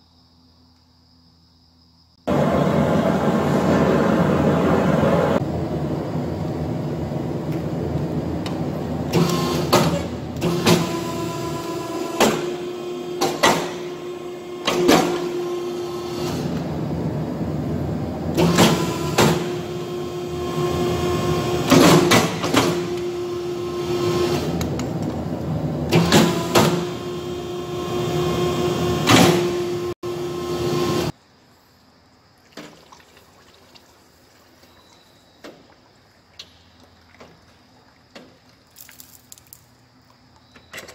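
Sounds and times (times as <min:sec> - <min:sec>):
power press humming: 0:02.3 - 0:31.1.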